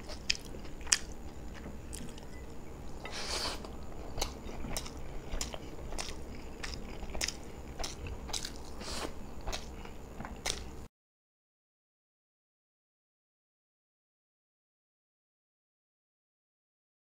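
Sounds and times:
person chewing with wet clicks: 0.0 - 2.6, 3.6 - 10.9.

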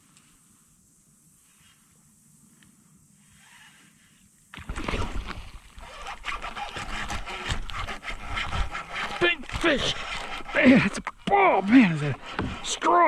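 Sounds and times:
water splashing: 4.5 - 12.8.

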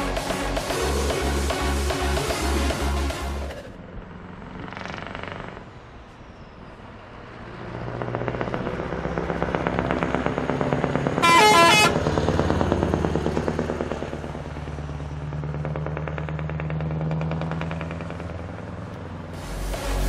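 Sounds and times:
truck driving past: 0.0 - 20.0
truck horn blast: 11.2 - 12.2.

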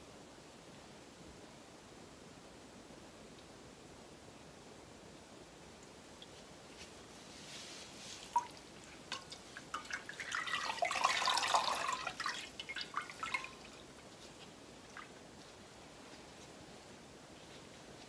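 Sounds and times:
liquid dripping into metal pot: 8.3 - 13.8.

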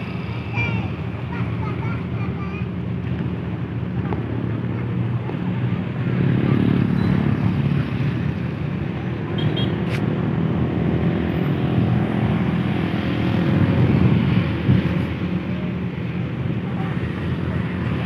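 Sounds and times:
wind noise: 11.6 - 18.0.

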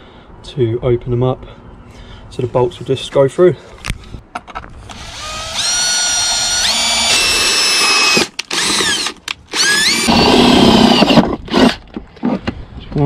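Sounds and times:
cordless drill whining: 4.9 - 11.8
drill boring into metal: 4.9 - 11.8.

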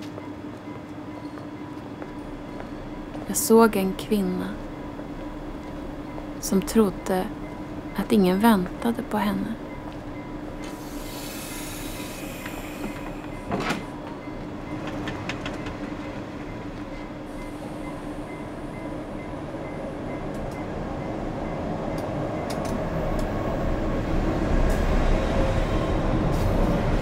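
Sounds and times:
train carriages rumbling on rails: 0.0 - 27.0
train clank: 8.7 - 18.9.

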